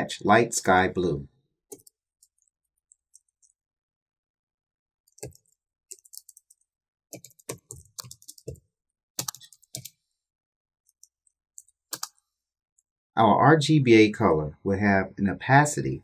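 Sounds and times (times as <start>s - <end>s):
keyboard typing: 1.7s - 3.6s, 5.1s - 10.0s, 10.9s - 12.9s.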